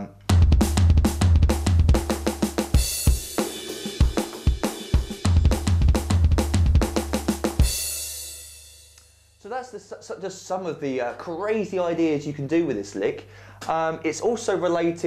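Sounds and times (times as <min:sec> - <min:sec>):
electronic drum fills: 0:00.2 - 0:08.4
rapid bass drum strokes: 0:00.2 - 0:08.9.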